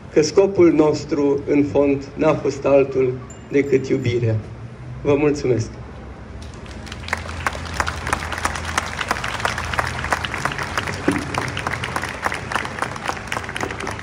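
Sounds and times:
crowd applauding: 6.4 - 14.0.

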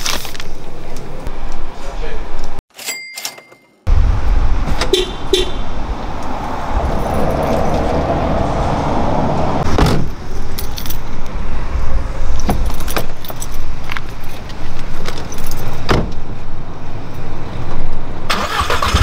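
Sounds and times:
low rumble: 3.9 - 9.6
keys jangling: 10.4 - 11.1, 12.6 - 15.8.

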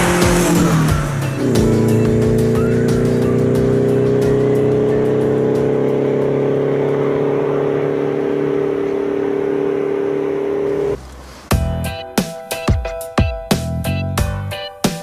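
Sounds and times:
loud droning tone: 0.0 - 11.0.

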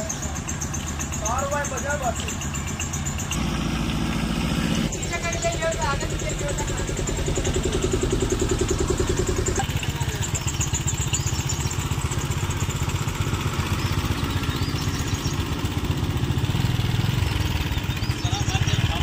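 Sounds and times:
truck engine running: 0.0 - 19.0.

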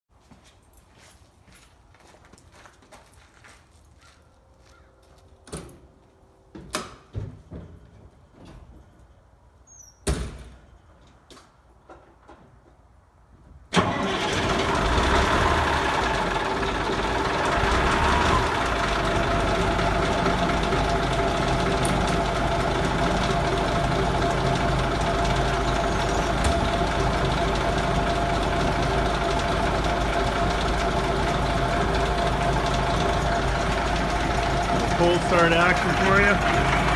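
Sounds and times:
diesel engine starting and running: 13.7 - 36.9.

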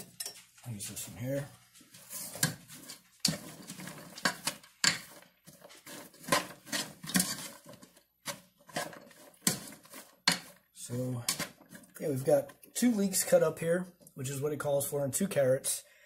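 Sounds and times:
spoon scraping a pot: 1.9 - 12.4.

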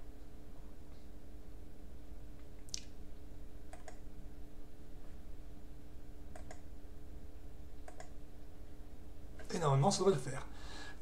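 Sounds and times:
steady low hum: 0.0 - 11.0
mouse button clicks: 6.3 - 6.6.

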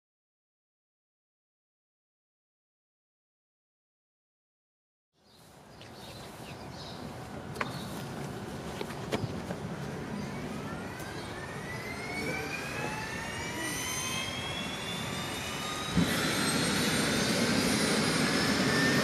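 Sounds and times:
helicopter turbine whine: 9.3 - 19.0.

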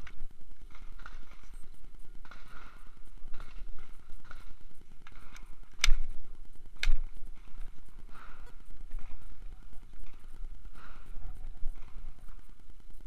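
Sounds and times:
magazine change: 2.2 - 8.6.

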